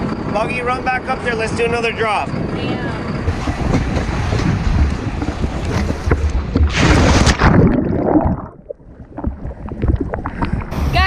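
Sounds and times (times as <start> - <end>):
wind buffeting microphone: 0.0 - 11.0
muffled underwater gurgling: 3.2 - 11.0
loud splash into water: 3.3 - 8.7.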